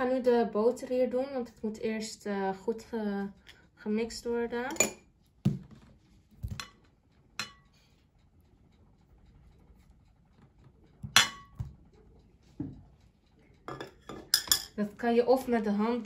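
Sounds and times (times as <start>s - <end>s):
plate tapping glass bowl: 13.7s - 14.7s.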